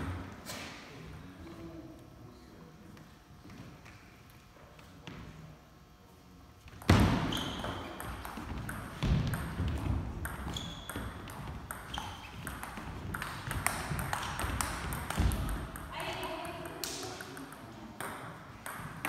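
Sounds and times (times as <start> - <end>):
table tennis ball hitting paddles: 6.7 - 19.0.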